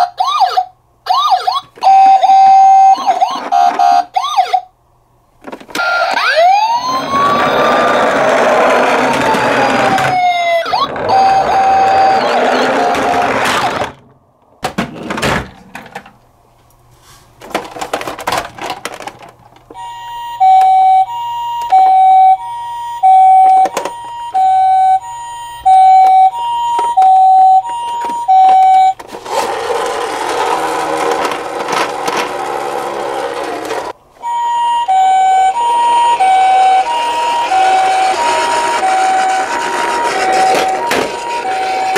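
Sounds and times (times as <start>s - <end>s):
toy two-tone siren: 0.0s - 4.7s, 5.8s - 13.8s, 19.8s - 29.0s, 34.2s - 41.9s.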